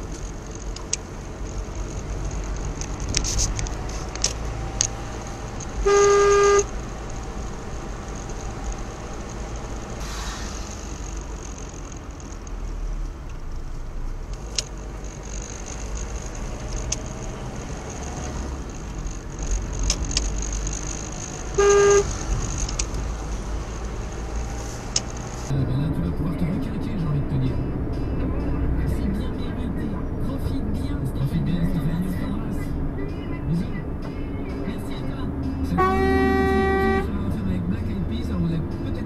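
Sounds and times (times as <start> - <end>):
engine and tyres rumbling: 0.0 - 39.0
car horn: 5.7 - 6.8, 21.5 - 22.3, 35.7 - 37.2.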